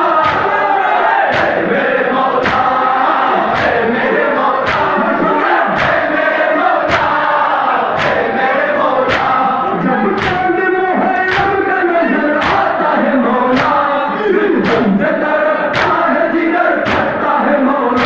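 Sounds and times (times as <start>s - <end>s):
crowd of men chanting: 0.0s - 18.0s
hands slapping chests: 0.2s - 0.5s, 1.3s - 1.7s, 2.4s - 2.8s, 3.5s - 3.8s, 4.6s - 5.0s, 5.7s - 6.0s, 6.8s - 7.2s, 7.9s - 8.3s, 9.0s - 9.4s, 10.2s - 10.5s, 11.3s - 11.6s, 12.4s - 12.7s, 13.5s - 13.8s, 15.7s - 16.0s, 16.8s - 17.2s.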